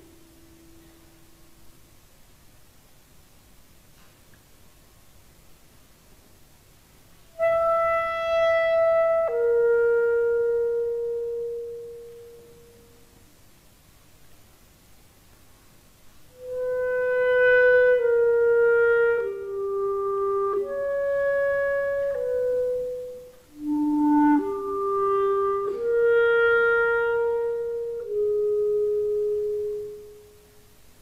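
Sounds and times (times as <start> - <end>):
clarinet playing slow melody: 0.0 - 1.6, 7.3 - 13.2, 16.3 - 30.7.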